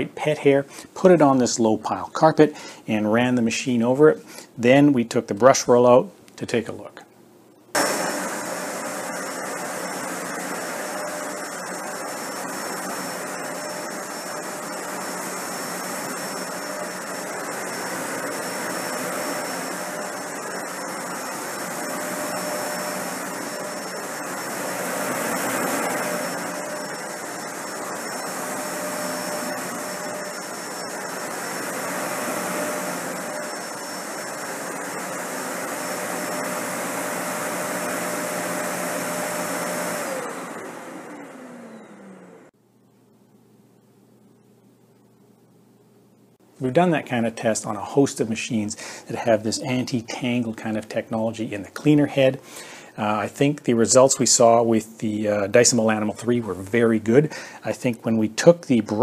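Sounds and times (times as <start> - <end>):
vacuum cleaner running on carpet: 7.8 - 42.5.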